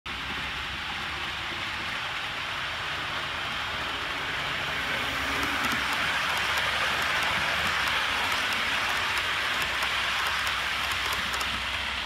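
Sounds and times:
model train wheels and motor rumbling: 0:00.1 - 0:12.0.

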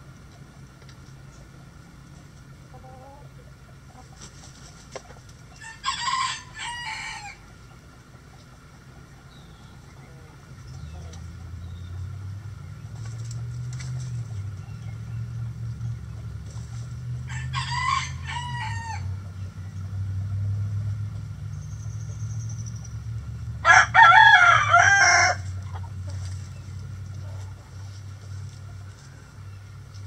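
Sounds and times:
steady low hum: 0:00.0 - 0:30.0
rooster crowing: 0:05.6 - 0:07.5, 0:17.2 - 0:19.1, 0:23.6 - 0:25.5.

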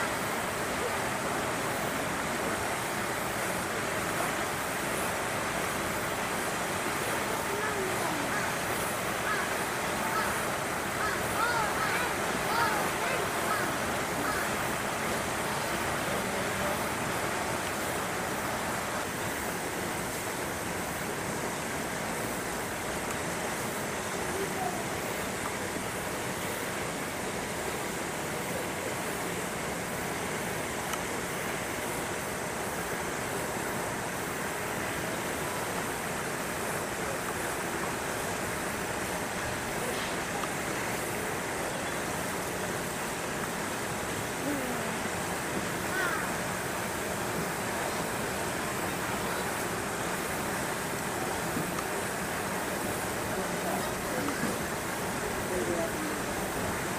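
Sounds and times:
faint distant voices: 0:00.0 - 0:56.9
rushing hiss: 0:00.0 - 0:56.9.

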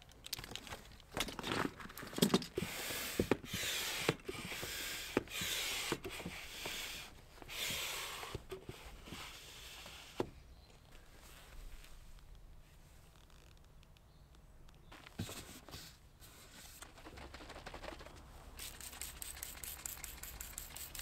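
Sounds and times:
hand pump strokes: 0:02.6 - 0:10.2, 0:18.6 - 0:21.0.

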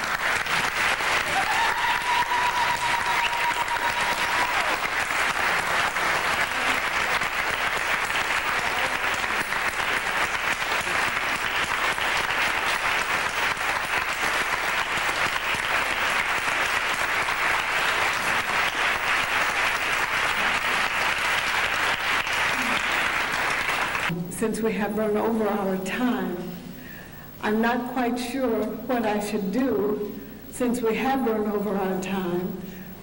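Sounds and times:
large audience applauding: 0:00.0 - 0:24.1.

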